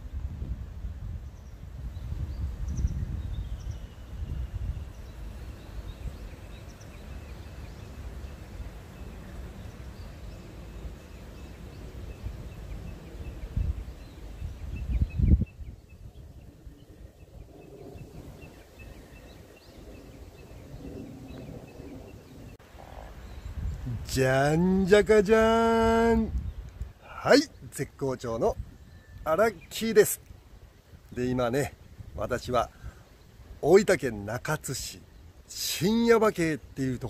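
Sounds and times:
wind buffeting microphone: 0.0 - 34.1
faint high chirping: 28.4 - 29.8.

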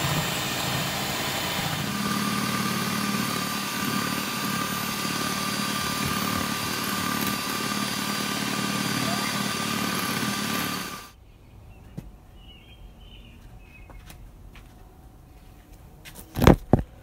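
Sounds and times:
electric hand mixer whisking: 0.0 - 11.2.

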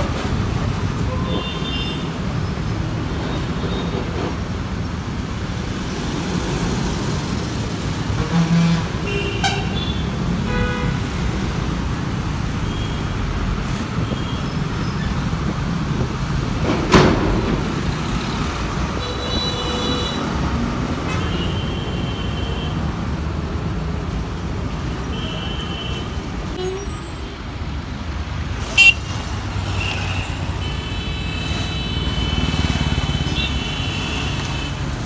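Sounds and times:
heavy road traffic: 0.0 - 35.0
vehicle horns honking: 8.2 - 11.1, 28.7 - 29.1, 33.1 - 34.8.

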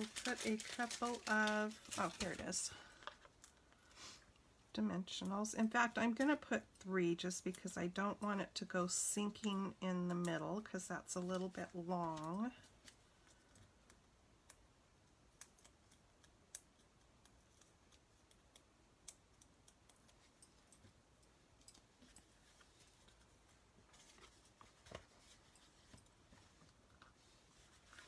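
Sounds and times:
light rustling of cardstock: 0.0 - 4.2, 9.2 - 14.0, 19.9 - 28.0.

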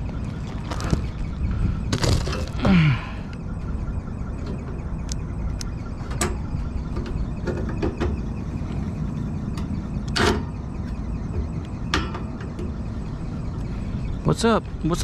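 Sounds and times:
metal clunk: 9.6 - 10.6.

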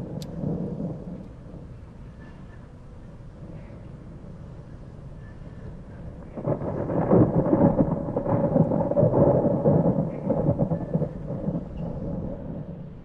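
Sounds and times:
thunder rumbling: 0.0 - 13.0.

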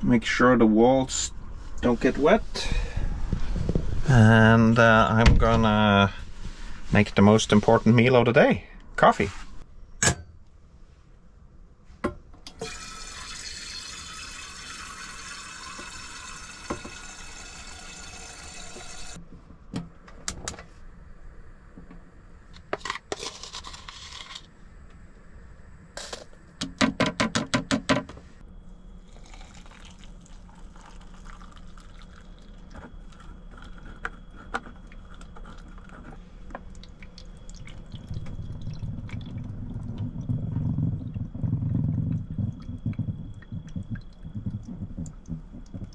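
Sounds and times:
tap water running into container: 12.5 - 19.2, 29.1 - 33.2, 36.6 - 41.3
low rumble: 37.2 - 45.9.

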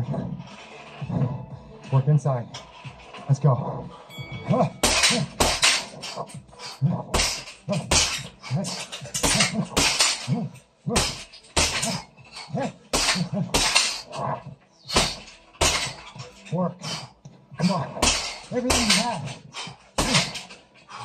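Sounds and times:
short grunting breaths: 3.8 - 21.0
gloves punching heavy bag: 4.6 - 16.2, 16.8 - 20.6.

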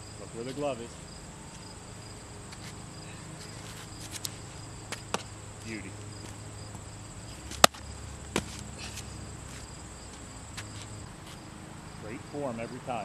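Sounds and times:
insects chirring: 0.0 - 13.0
baseball smacking into glove: 4.9 - 5.3, 7.5 - 8.6.

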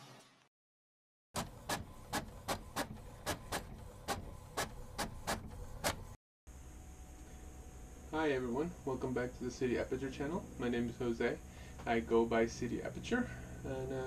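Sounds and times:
low steady hum: 6.5 - 14.0.

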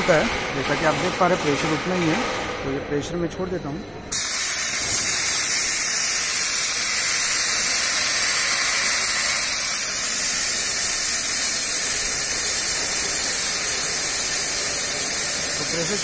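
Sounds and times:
pressurised gas hissing out: 4.1 - 16.0.

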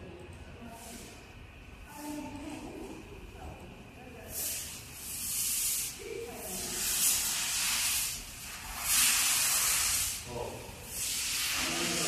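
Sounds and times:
compressed air hissing: 4.2 - 12.0.

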